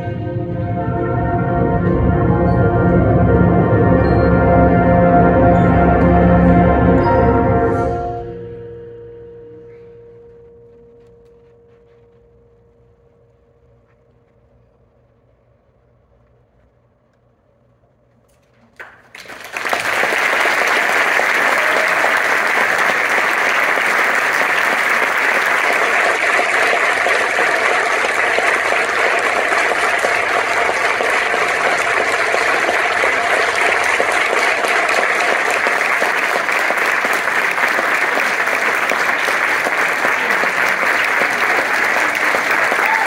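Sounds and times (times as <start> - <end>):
audience applauding: 18.7 - 43.0.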